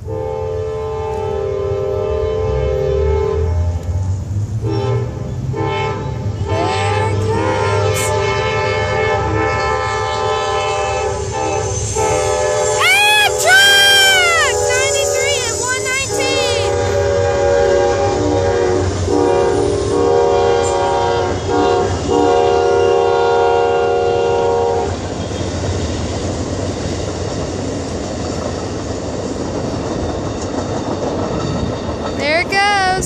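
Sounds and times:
locomotive horn blasts: 0:00.0 - 0:04.0, 0:04.6 - 0:25.0
train cars clicking over rail joints: 0:25.0 - 0:32.5.

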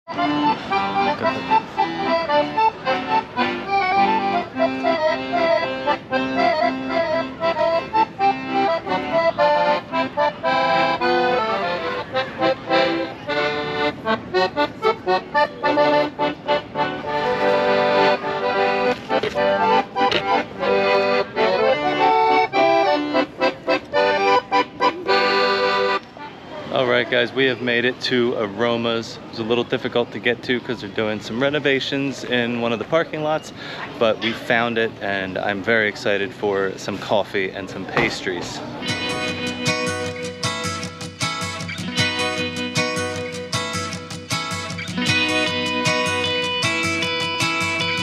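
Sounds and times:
instrumental music: 0:00.1 - 0:26.6, 0:38.7 - 0:48.0.

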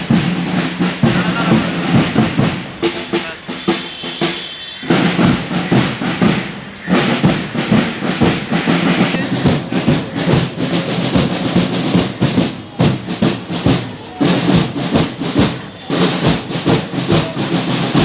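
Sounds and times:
drums beating fast rhythm: 0:00.0 - 0:18.0.

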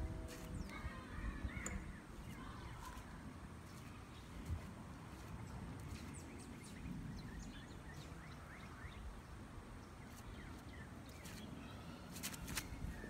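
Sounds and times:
wind rumble on microphone: 0:00.0 - 0:03.5, 0:04.2 - 0:10.5
birds chirping: 0:00.0 - 0:12.1.

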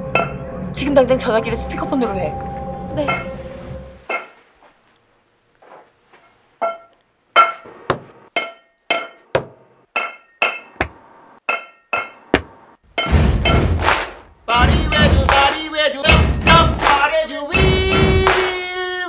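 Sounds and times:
metal pipe clanking: 0:06.2 - 0:10.9, 0:11.5 - 0:13.8.

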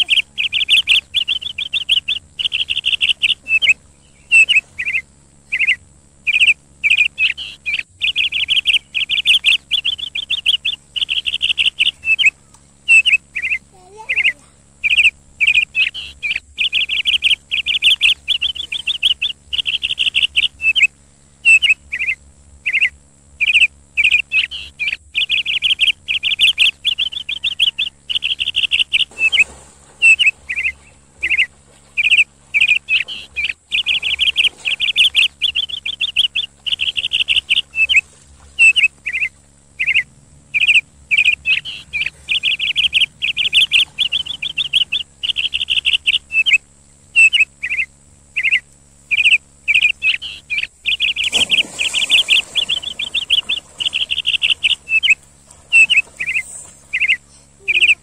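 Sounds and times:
songbird chirping and trilling: 0:00.0 - 0:58.0
water splashing: 0:28.9 - 0:40.0, 0:50.7 - 0:58.0.

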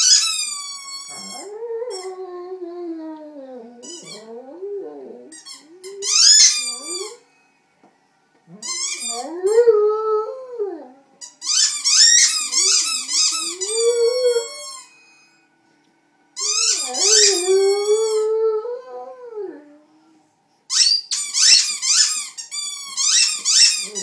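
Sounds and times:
squeaky toy squeaking: 0:00.0 - 0:02.2, 0:03.8 - 0:04.4, 0:05.3 - 0:07.2, 0:08.6 - 0:09.2, 0:11.2 - 0:15.3, 0:16.4 - 0:18.2, 0:20.7 - 0:24.0
dog howling: 0:12.6 - 0:14.7, 0:16.4 - 0:20.2.

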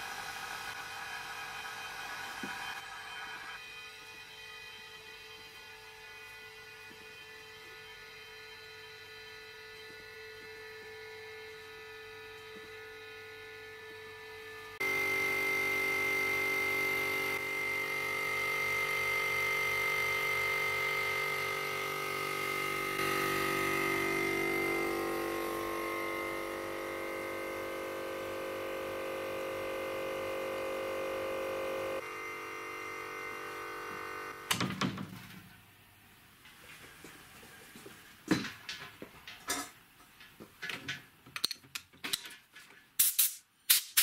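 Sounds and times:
compressor motor hum: 0:09.3 - 0:34.7.

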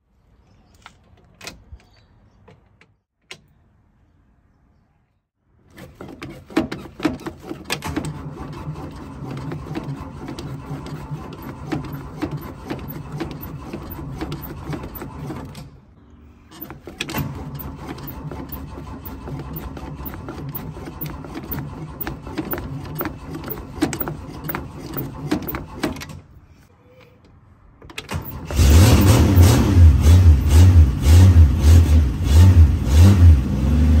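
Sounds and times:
starter cranking engine: 0:05.8 - 0:15.7, 0:16.5 - 0:26.2, 0:28.0 - 0:30.4.

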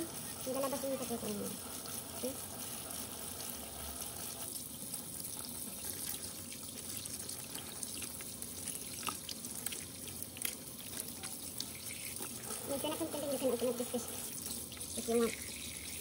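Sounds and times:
small drips: 0:00.0 - 0:16.0
tap water splashing into sink: 0:06.0 - 0:12.6.

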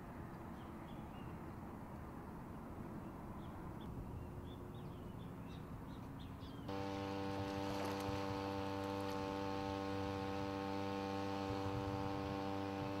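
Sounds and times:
steady hum with overtones: 0:06.7 - 0:13.0.

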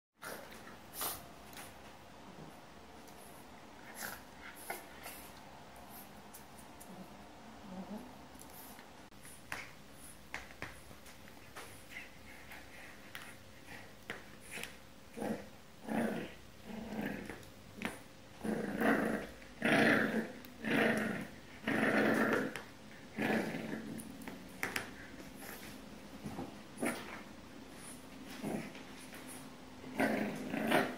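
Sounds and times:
puppy growling: 0:03.8 - 0:08.5, 0:13.6 - 0:30.9.

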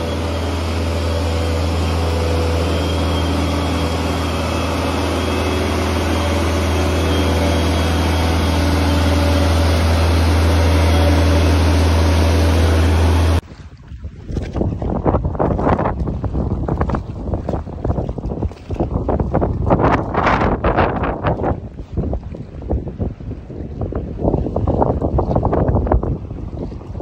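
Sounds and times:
engine droning: 0:00.0 - 0:13.5.

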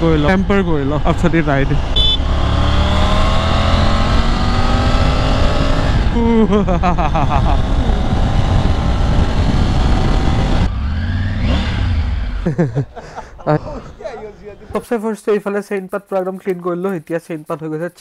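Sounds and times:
motorcycle engine accelerating: 0:00.0 - 0:12.8
wind noise on microphone: 0:02.9 - 0:12.0.

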